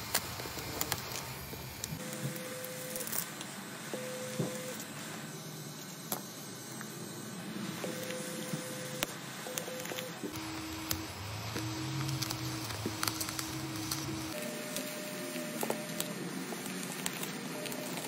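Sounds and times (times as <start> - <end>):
sharp clicks and crackles: 9.0 - 14.4.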